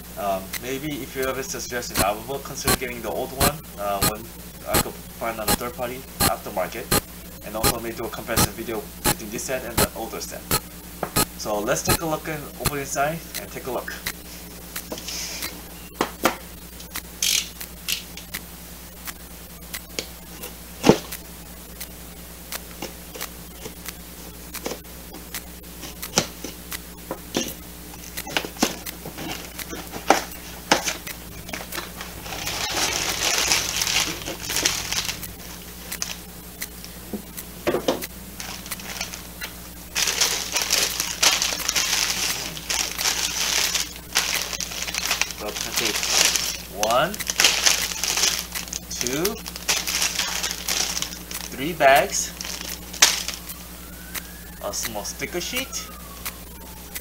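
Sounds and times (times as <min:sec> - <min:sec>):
plastic bags crinkling: 0:27.4 - 0:36.2, 0:38.3 - 0:53.6.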